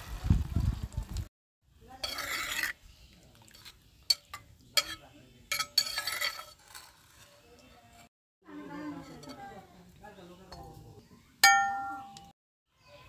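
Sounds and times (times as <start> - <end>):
spoon stirring in water: 1.9 - 7.3, 8.9 - 9.6
spoon clinking on earthenware bowl: 3.5 - 6.6, 9.0 - 9.6, 11.4 - 12.3.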